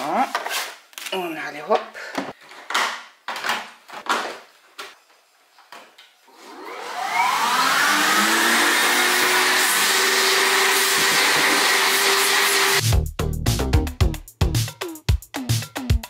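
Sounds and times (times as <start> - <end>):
vacuum motor whining: 6.4 - 12.8.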